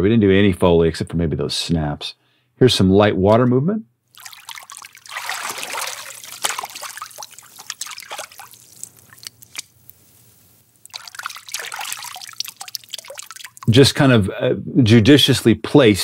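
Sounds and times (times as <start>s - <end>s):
water sloshing: 4.1s - 13.8s.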